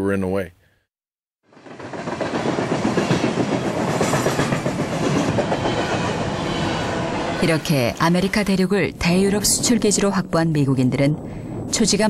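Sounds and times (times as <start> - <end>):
train wheels rumbling on rails: 1.5 - 12.0.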